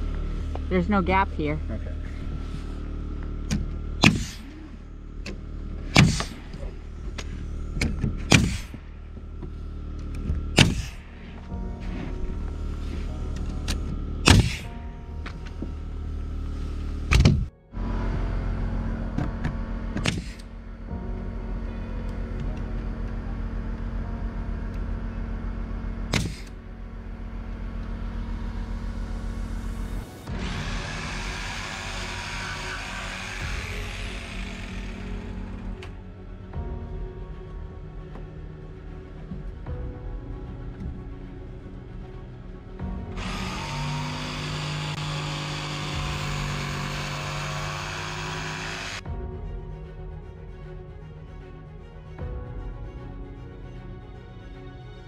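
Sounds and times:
steady low hum: 0.0 - 54.1
nail gun shots: 4.0 - 4.4, 6.0 - 6.3, 8.3 - 8.7, 10.6 - 11.0, 14.2 - 14.7, 20.0 - 20.4, 26.1 - 26.5.

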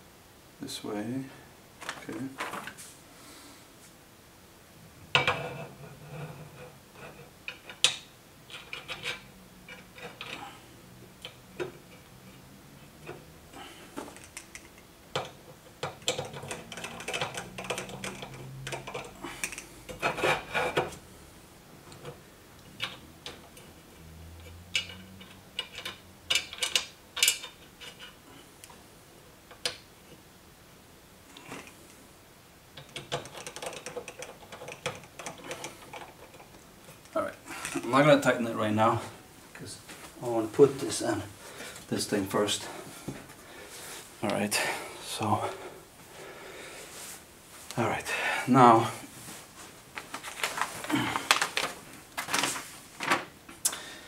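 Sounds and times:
screws clicking and clinking: 14.1 - 20.2.

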